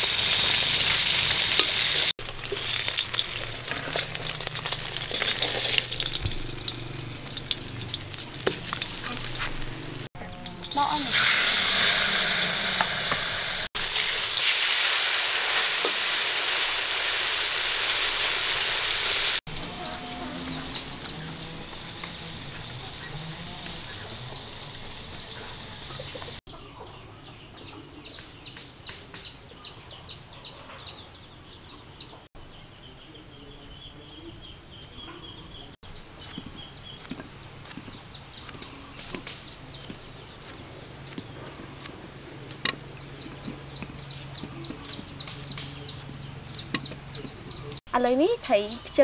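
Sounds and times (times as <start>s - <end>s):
chickens peeping: 2.6s - 11.0s, 19.5s - 47.8s
steady hiss: 10.8s - 19.4s.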